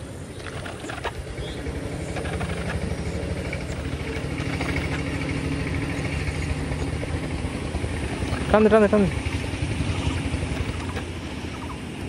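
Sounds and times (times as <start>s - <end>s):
engine humming: 0.0s - 12.0s
sharp clicks: 0.3s - 5.3s.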